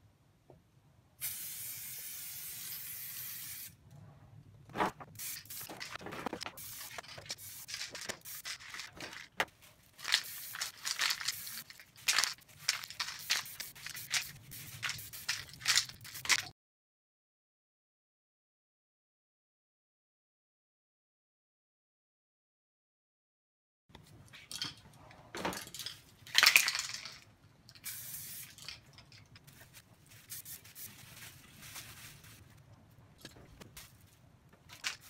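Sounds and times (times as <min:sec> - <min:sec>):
spray can rattling when shaken: 0:01.2 - 0:03.7, 0:05.1 - 0:16.5, 0:25.7 - 0:32.4, 0:34.7 - 0:35.0
spray paint can hissing: 0:01.2 - 0:03.8, 0:05.2 - 0:09.1, 0:10.0 - 0:16.5, 0:27.8 - 0:28.8, 0:30.2 - 0:31.0
knocks and scrapes: 0:04.6 - 0:09.8.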